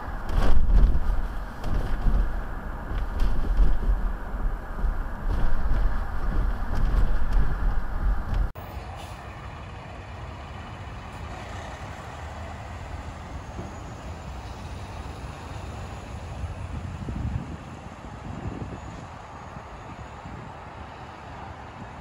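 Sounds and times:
truck diesel engine running: 0.0s - 15.8s
low road and wind rumble: 0.0s - 22.0s.

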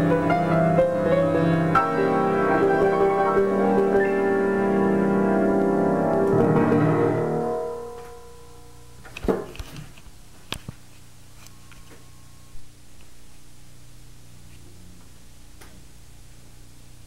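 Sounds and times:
piano music: 0.0s - 9.0s.

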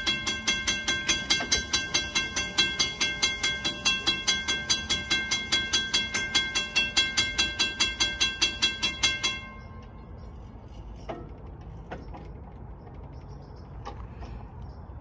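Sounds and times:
crossing warning bell ringing: 0.0s - 10.6s.

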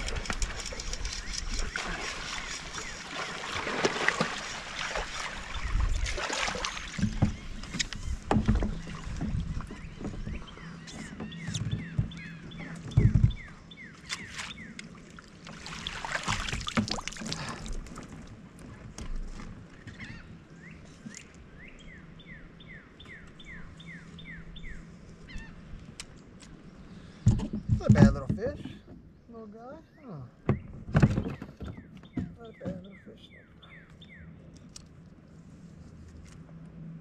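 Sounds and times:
water splashing around kayak: 0.0s - 22.2s
knocks against hull: 6.0s - 13.6s, 16.1s - 17.2s, 27.2s - 29.1s, 30.4s - 33.0s.

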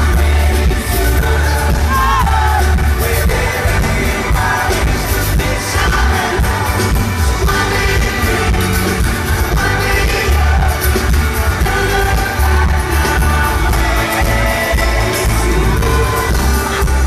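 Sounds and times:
acoustic guitar: 0.0s - 17.0s
heavy bass: 0.0s - 17.0s
live pop band: 0.0s - 17.0s
person singing: 0.0s - 17.0s.

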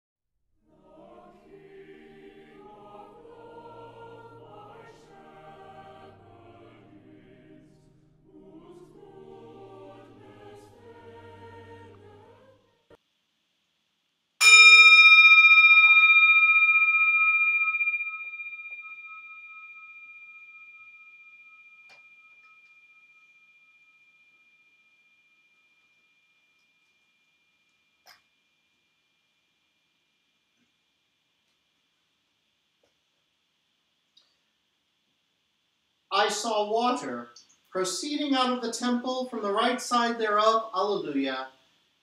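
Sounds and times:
choir singing: 0.6s - 13.0s
bell ringing: 14.4s - 26.9s.

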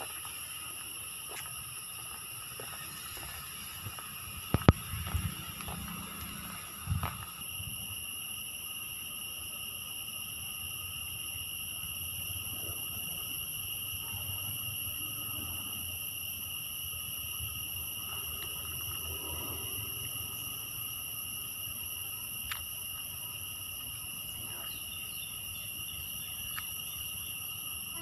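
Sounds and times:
insect chorus drone: 0.0s - 28.0s
low rumble: 2.7s - 7.4s.

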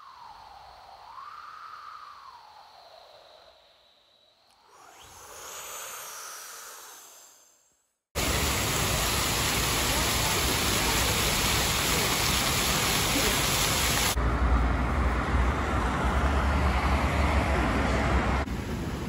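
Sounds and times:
fountain water splashing: 8.2s - 14.2s
street traffic: 9.9s - 19.0s.

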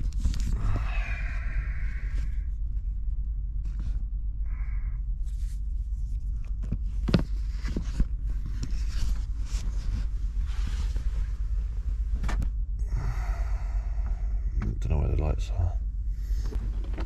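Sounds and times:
steady low hum: 0.0s - 17.0s
rustling: 5.2s - 12.4s.

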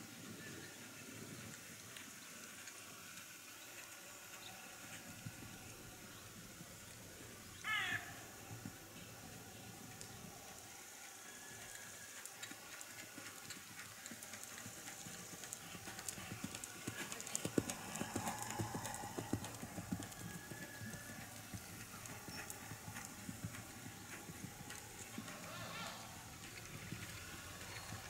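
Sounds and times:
horse hooves cantering on sand: 8.2s - 28.0s.

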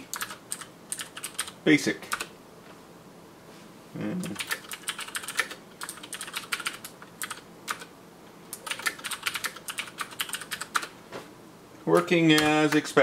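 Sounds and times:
typing on computer keyboard: 0.0s - 2.3s, 4.4s - 7.9s, 8.5s - 10.9s, 11.9s - 12.9s.

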